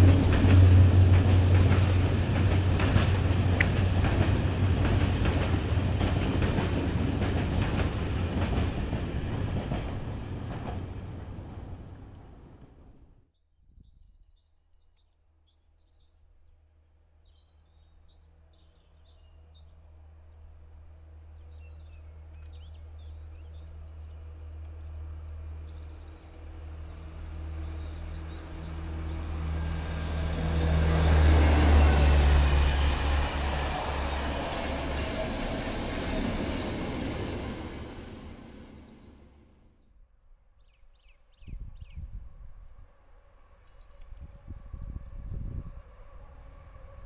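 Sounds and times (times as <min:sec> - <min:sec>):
diesel locomotive engine drone: 0:00.0 - 0:12.9, 0:24.2 - 0:39.7
earlier train: 0:00.0 - 0:13.1, 0:24.1 - 0:39.8, 0:44.4 - 0:47.0.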